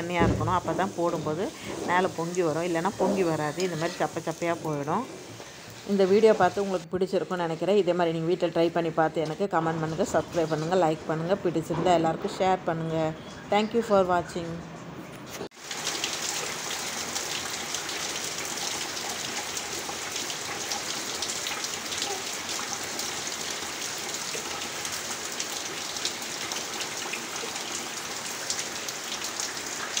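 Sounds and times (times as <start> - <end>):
heavy rain on leaves: 15.5 - 30.0.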